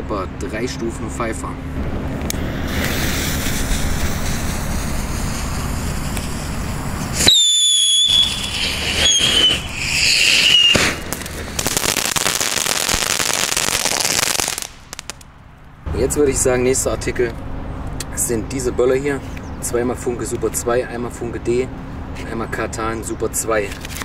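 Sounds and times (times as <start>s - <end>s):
firework crackling pops: 2.2s - 15.3s
fountain firework hissing: 2.4s - 15.2s
firework shrill whistles: 2.7s - 15.1s.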